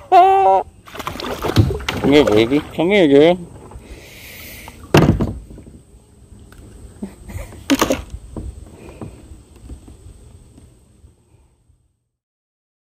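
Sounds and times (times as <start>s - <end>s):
knocks and thumps against kayak: 0.9s - 2.8s, 4.8s - 5.8s, 7.5s - 10.0s.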